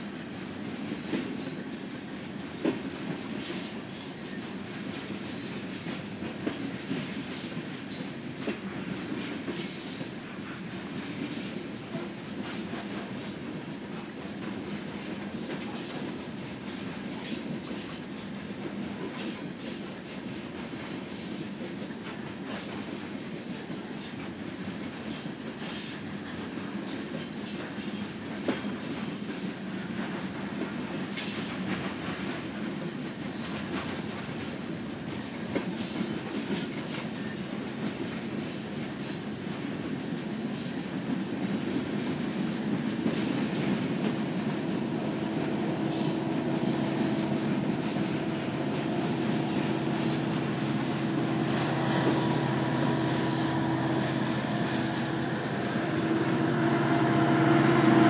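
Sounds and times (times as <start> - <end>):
high-pitched wheel squeals: 40.1 - 40.8, 45.9 - 46.5, 52.2 - 53.8, 57.8 - 58.0
train cars rumbling past: 40.1 - 58.0.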